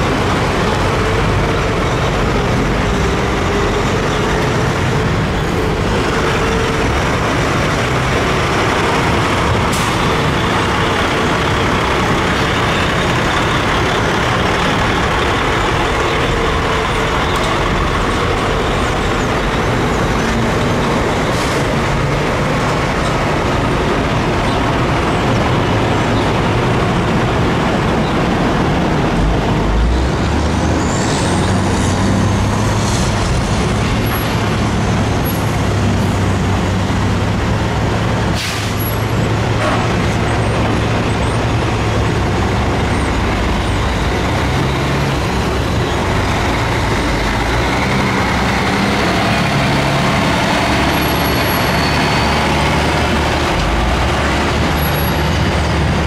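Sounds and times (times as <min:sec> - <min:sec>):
industrial din: 0:00.0 - 0:56.0
trucks driving: 0:00.0 - 0:56.0
high squeal: 0:50.7 - 0:52.8.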